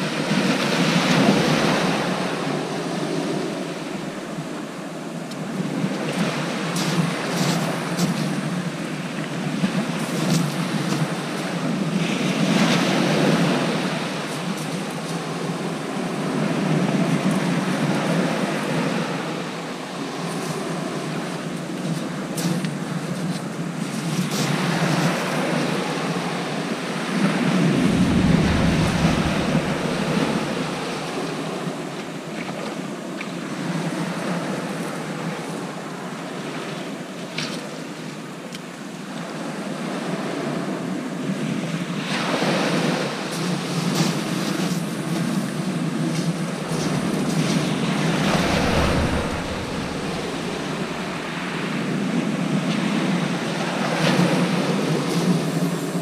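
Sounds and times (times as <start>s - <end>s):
wind gusting on microphone: 27.3s - 32.0s, 46.2s - 52.1s
surf breaking on shingle beach: 27.6s - 31.6s, 46.7s - 51.7s.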